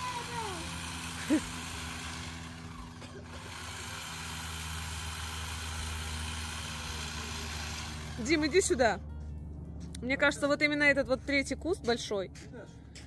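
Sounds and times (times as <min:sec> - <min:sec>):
small motor humming: 0:00.0 - 0:08.8.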